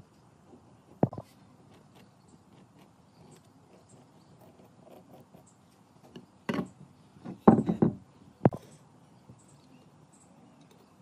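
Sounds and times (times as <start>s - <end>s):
pen scratching on wood: 1.1s - 5.5s
wooden knocks on workbench: 7.3s - 8.6s.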